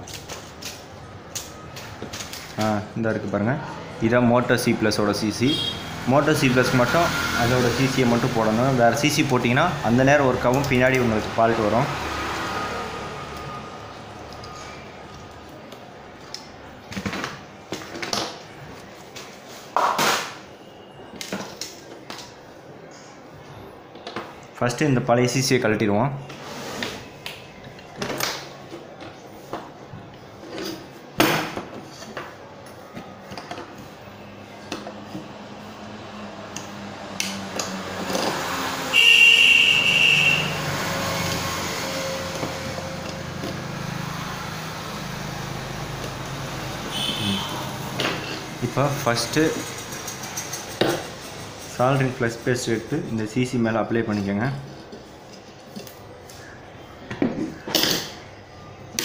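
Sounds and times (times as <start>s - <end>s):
loud high-pitched tone: 5.5s - 7.6s, 38.9s - 43.0s, 46.9s - 47.9s.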